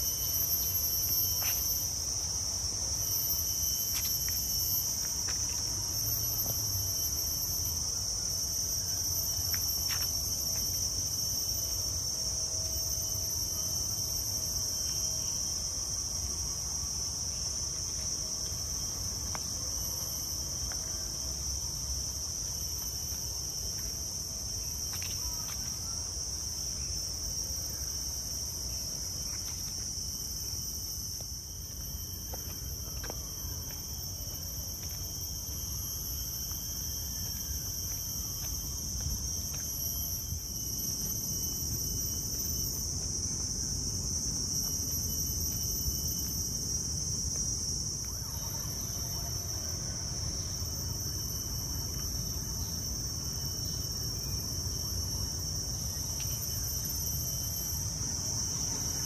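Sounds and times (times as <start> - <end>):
shrill insect chorus: 0.0 - 59.0.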